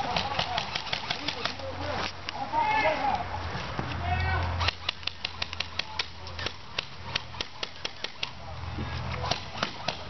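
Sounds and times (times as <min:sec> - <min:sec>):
airsoft rifles firing: 0:00.0 - 0:01.6, 0:04.6 - 0:08.4, 0:09.2 - 0:10.0.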